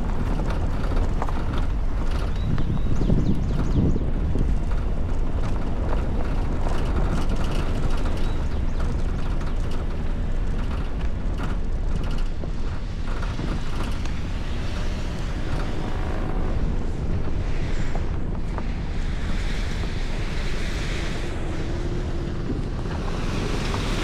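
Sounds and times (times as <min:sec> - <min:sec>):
knocks of stones and bumps: 0:00.0 - 0:18.8
tyres rumbling on dirt: 0:00.0 - 0:24.0
wind buffeting microphone: 0:00.0 - 0:24.0.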